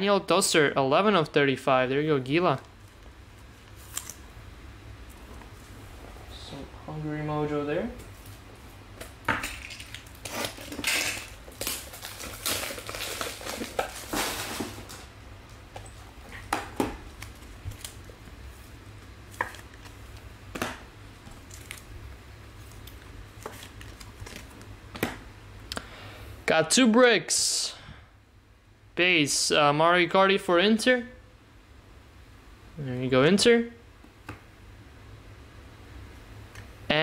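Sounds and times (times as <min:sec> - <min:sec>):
low steady hum: 0:00.0 - 0:37.0
cards and plastic packaging rustling: 0:09.4 - 0:15.1, 0:21.2 - 0:25.1.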